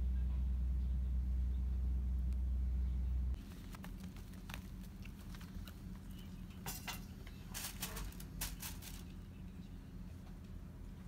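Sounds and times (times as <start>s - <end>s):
dog paws walking on mats: 3.4s - 6.2s.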